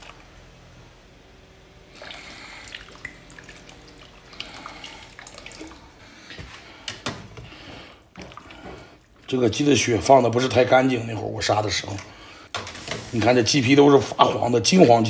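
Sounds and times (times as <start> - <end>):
water simmering and bubbling: 1.8 - 6.3, 7.4 - 9.8
wine pouring from a bottle: 1.9 - 6.1.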